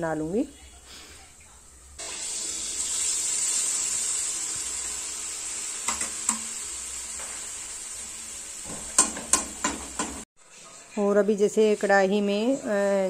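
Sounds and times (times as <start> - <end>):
batter sizzling in hot oil: 2.0 - 10.3.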